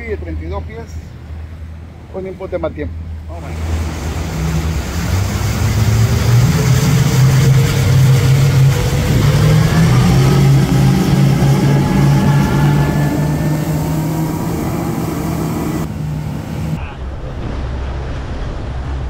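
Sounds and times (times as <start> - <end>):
churning boat wake: 0.0 - 19.0
outboard motors running hard: 3.0 - 17.2.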